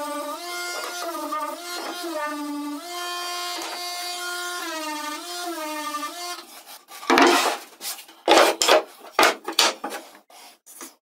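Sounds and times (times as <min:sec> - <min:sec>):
orbital sander whine: 0:00.0 - 0:06.5
wooden slats rubbing and scraping: 0:01.6 - 0:02.1, 0:06.4 - 0:11.0.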